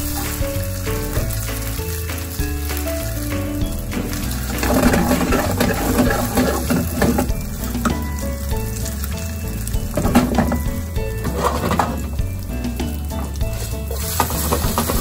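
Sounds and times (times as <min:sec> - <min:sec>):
background music: 0:00.0 - 0:15.0
noodles sizzling in a frying pan: 0:00.0 - 0:15.0.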